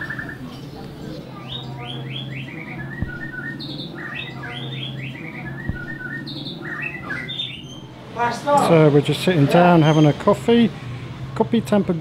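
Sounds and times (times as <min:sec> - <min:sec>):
songbird chirping: 0:00.0 - 0:08.2
sharp knocks: 0:03.0 - 0:03.8, 0:05.6 - 0:06.5.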